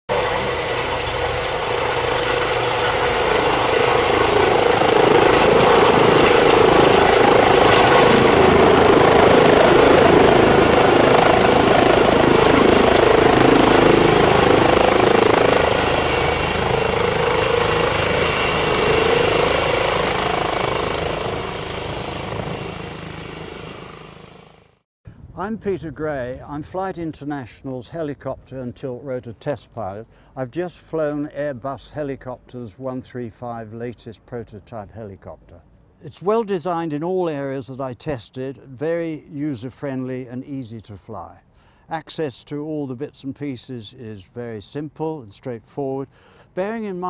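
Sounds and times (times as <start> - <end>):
helicopter rotor and engine whine: 0.1 - 24.8.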